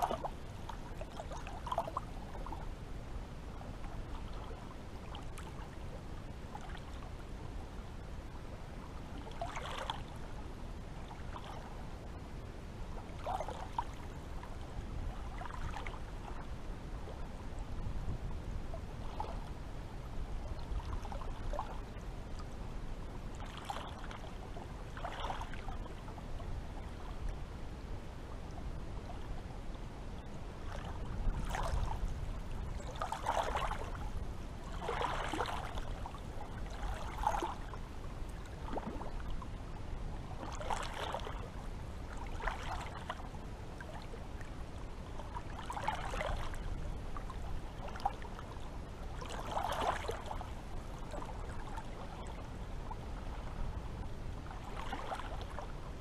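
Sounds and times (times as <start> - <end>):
small waves lapping: 0.0 - 12.2, 12.8 - 17.9, 18.6 - 56.0
steady low rumble: 10.1 - 40.7.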